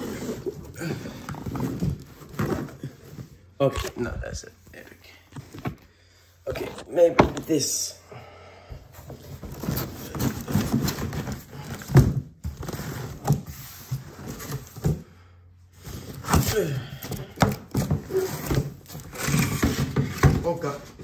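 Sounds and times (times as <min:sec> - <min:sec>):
cardboard box scraping: 0:00.0 - 0:03.1.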